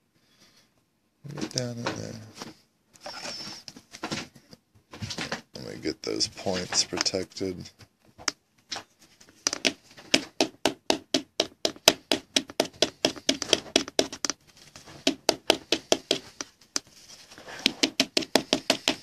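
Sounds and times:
plastic card holder tapping table: 9.5s - 16.9s, 17.6s - 19.0s.

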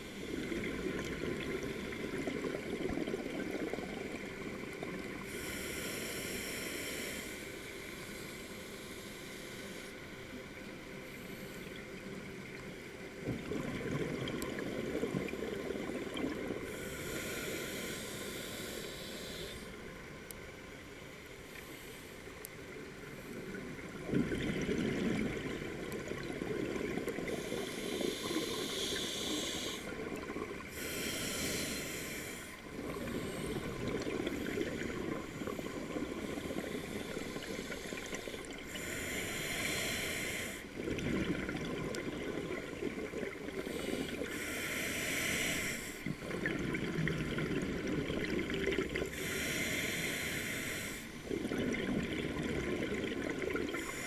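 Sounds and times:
regulator hissing inhalations: 5.3s - 10.0s, 16.7s - 19.8s, 27.3s - 30.0s, 30.7s - 40.7s, 43.6s - 46.1s, 49.1s - 51.2s, 53.7s - 54.0s
rumbling exhaled bubbles: 13.2s - 16.6s, 23.9s - 27.3s, 40.8s - 43.5s, 46.1s - 49.1s, 51.3s - 53.8s.

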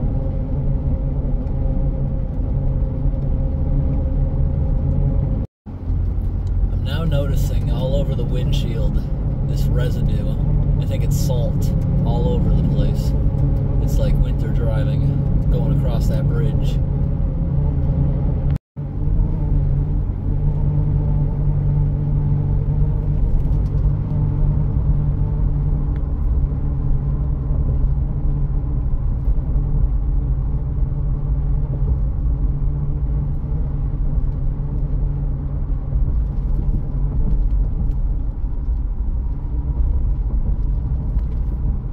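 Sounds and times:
road and engine rumble in car: 0.0s - 41.9s.

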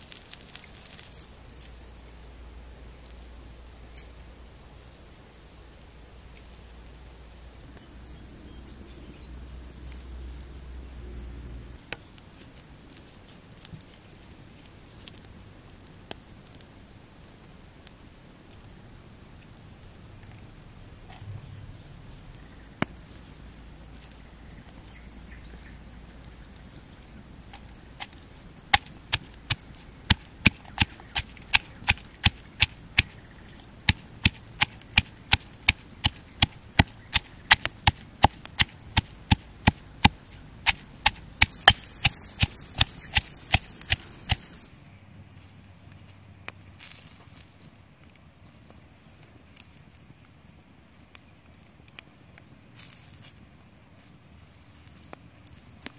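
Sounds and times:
pestle pounding in stone mortar: 28.0s - 44.7s.

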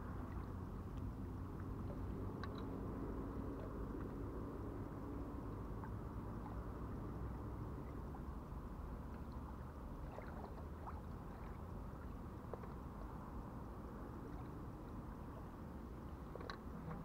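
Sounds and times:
small waves lapping at shore: 0.0s - 17.0s
faint clicks: 2.4s - 2.8s, 16.4s - 17.0s.

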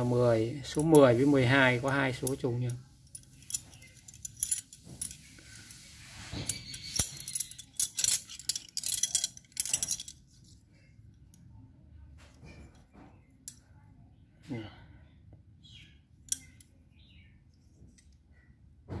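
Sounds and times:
metal wrenches clinking: 0.5s - 10.6s.

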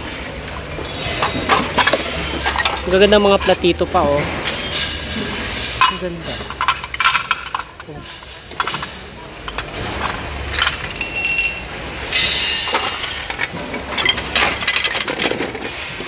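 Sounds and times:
ceramic plates clinking: 4.6s - 11.6s.

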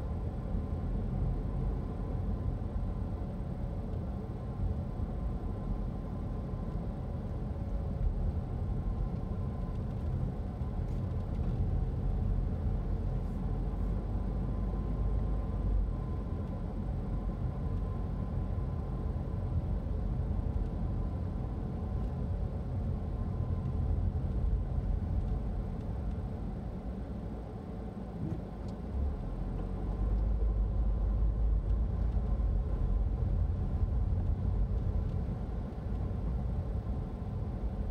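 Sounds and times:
engine and road rumble: 0.0s - 37.9s.

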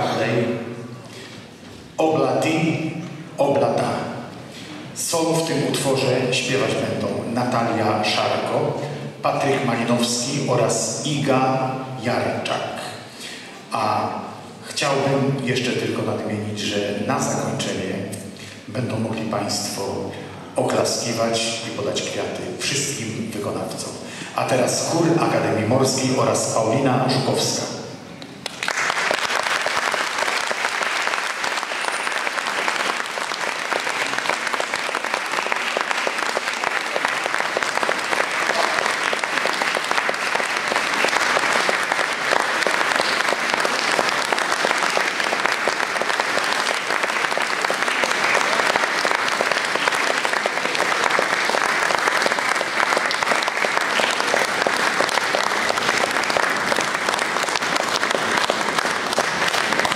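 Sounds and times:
audience applauding: 28.4s - 59.9s.

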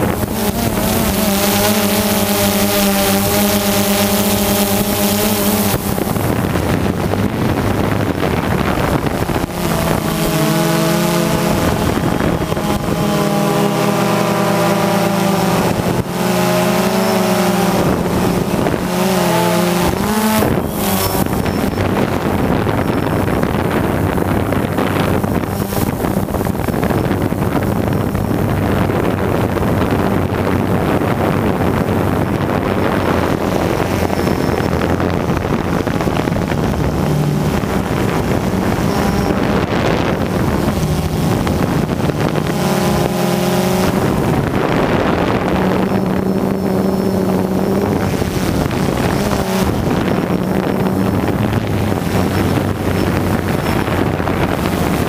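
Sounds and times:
drone motors and propellers: 0.0s - 55.0s
wind buffeting microphone: 0.0s - 55.0s.

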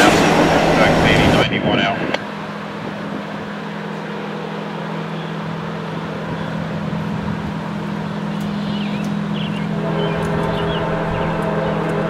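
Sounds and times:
diesel locomotive drone: 0.0s - 12.0s.

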